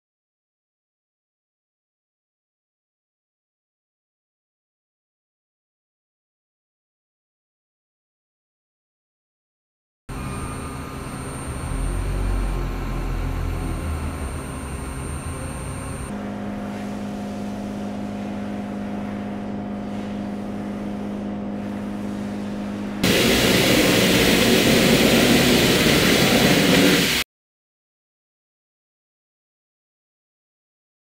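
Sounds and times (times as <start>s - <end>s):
machinery humming: 10.1s - 27.2s.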